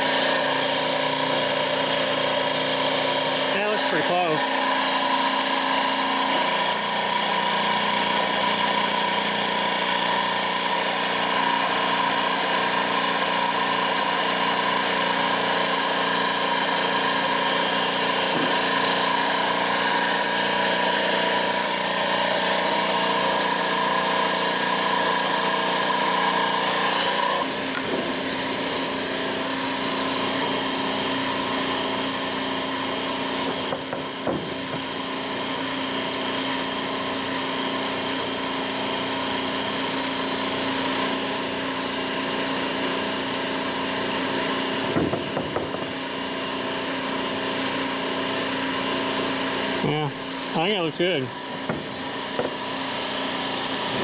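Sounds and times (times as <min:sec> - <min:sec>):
steady mechanical hum: 0:00.0 - 0:54.0.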